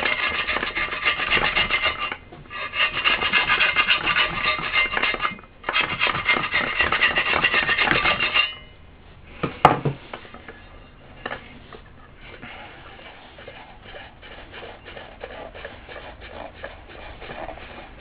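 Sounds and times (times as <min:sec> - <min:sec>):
metal blade scraping: 0:00.0 - 0:08.8.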